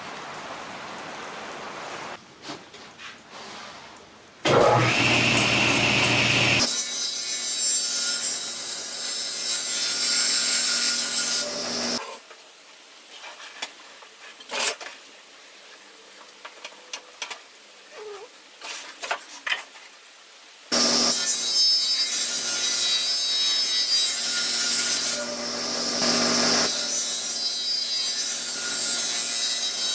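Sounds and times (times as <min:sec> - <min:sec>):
table saw cutting wood: 0:04.5 - 0:12.0, 0:20.7 - 0:29.9.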